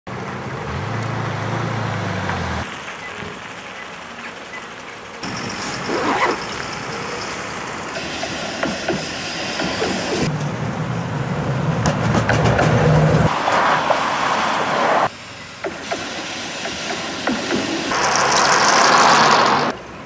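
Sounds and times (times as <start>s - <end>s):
low vehicle hum: 0.1s - 8.0s
passing traffic: 0.1s - 20.0s.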